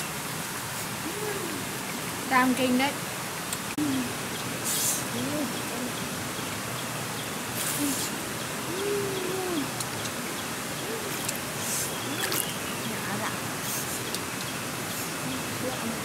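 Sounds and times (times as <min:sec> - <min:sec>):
leaves and branches rustling: 0:00.0 - 0:16.0
outdoor hiss: 0:00.0 - 0:16.0
faint low calls: 0:01.0 - 0:02.8, 0:07.3 - 0:14.4.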